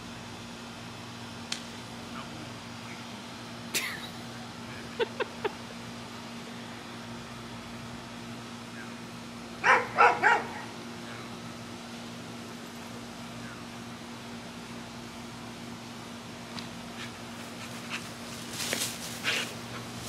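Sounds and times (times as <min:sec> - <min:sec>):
steady low hum: 0:00.0 - 0:20.0
dog barking: 0:09.6 - 0:10.7.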